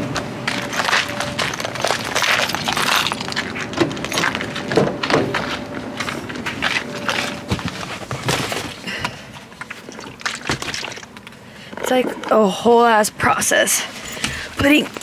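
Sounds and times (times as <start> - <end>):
bags knocking and thudding: 7.0 - 9.2.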